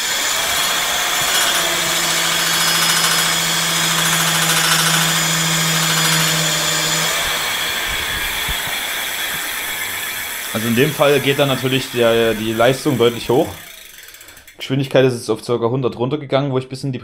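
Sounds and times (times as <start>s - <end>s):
electric motor whirring: 0.0s - 14.3s.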